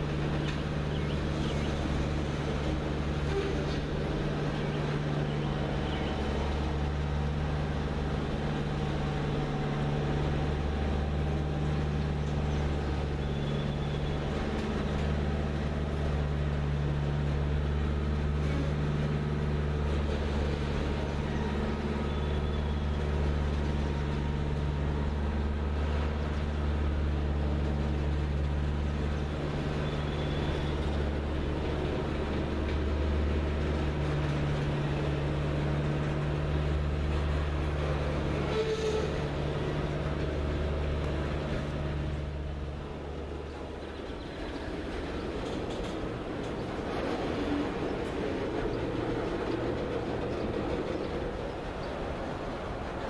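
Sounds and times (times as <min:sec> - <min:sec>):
diesel locomotive drone: 0:00.0 - 0:53.0
train cars rumbling over rails: 0:00.0 - 0:53.0.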